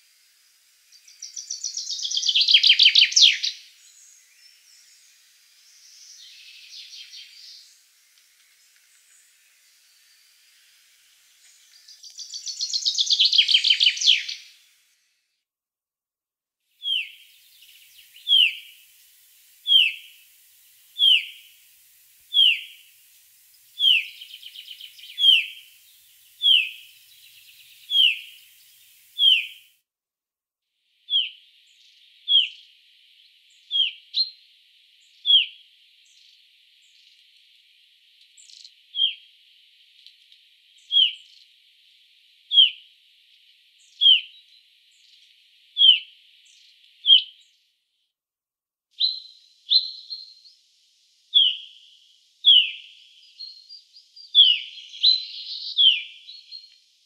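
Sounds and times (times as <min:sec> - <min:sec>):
finch calling: 0:19.6 - 0:20.2, 0:22.3 - 0:22.8, 0:23.8 - 0:25.7, 0:26.4 - 0:28.6, 0:29.2 - 0:29.6.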